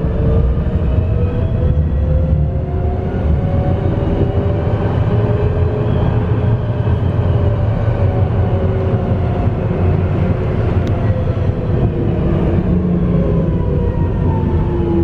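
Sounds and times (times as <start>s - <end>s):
tram rumbling along track: 0.0s - 15.0s.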